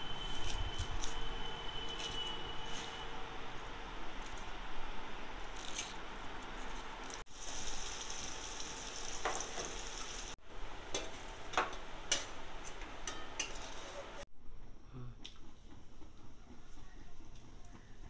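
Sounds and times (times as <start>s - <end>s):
onions sizzling in hot oil: 7.3s - 10.4s
spatula scraping a pan: 13.1s - 14.2s.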